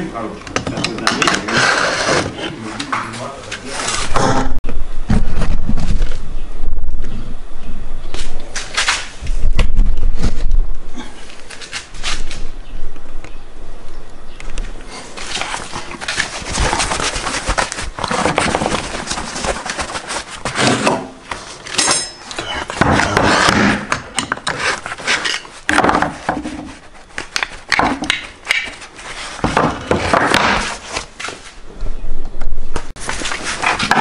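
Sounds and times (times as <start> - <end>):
metal clinks and scrapes: 21.6 - 22.8.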